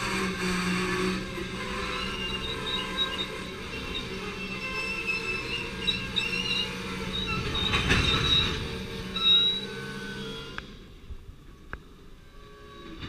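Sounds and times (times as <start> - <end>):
high-pitched wheel squeals: 0.0 - 11.0, 11.9 - 13.0
train wheels rumbling on rails: 0.0 - 13.0.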